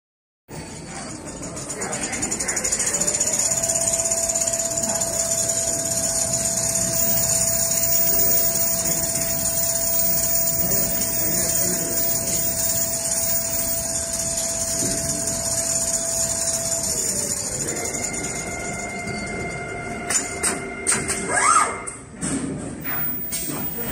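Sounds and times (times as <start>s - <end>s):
sewing machine whirring: 0.5s - 21.8s, 22.8s - 23.9s.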